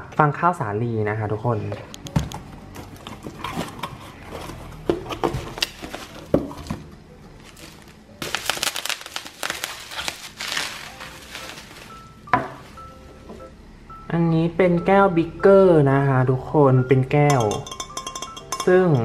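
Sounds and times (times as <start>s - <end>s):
bubble wrap crinkling: 5.2s - 6.4s, 7.4s - 12.8s.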